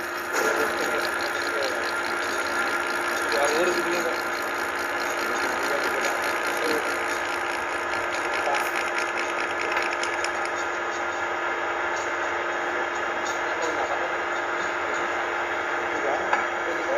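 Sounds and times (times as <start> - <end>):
milling machine humming: 0.0 - 13.2.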